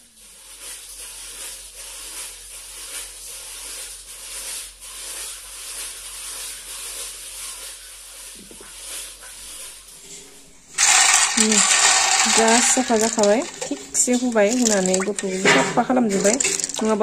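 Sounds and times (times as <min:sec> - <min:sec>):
peeler scraping potato: 0:10.8 - 0:15.4.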